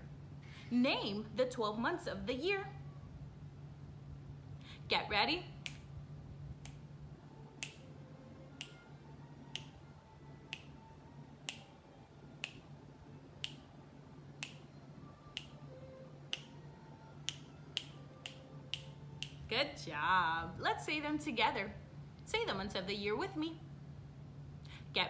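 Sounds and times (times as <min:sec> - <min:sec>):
finger snaps: 0:05.6 - 0:05.9, 0:06.6 - 0:06.8, 0:07.6 - 0:07.9, 0:08.5 - 0:08.9, 0:09.5 - 0:09.8, 0:10.4 - 0:12.8, 0:13.4 - 0:13.8, 0:14.4 - 0:19.5.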